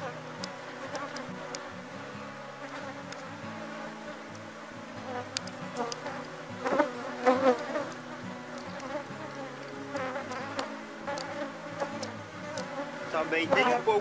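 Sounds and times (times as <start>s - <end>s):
honeybees buzzing in a swarm: 0.0s - 14.0s
single bee flying past: 0.8s - 1.7s, 5.0s - 13.8s.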